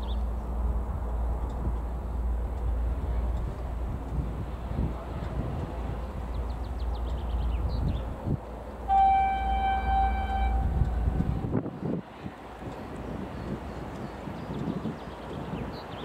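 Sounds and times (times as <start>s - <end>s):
diesel locomotive engine rumble: 0.0s - 16.0s
locomotive horn: 8.9s - 11.5s.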